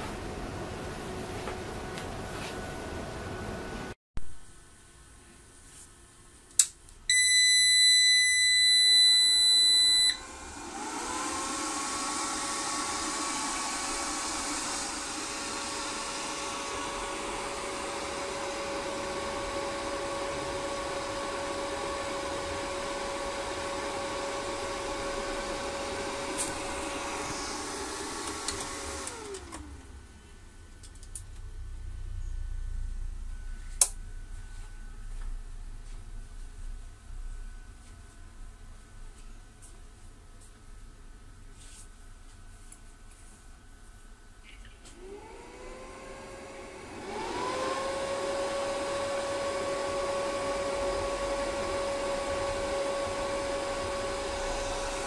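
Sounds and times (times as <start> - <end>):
steady buzzer beep: 7.1 - 10.2
cooling fans whirring: 8.4 - 55.0.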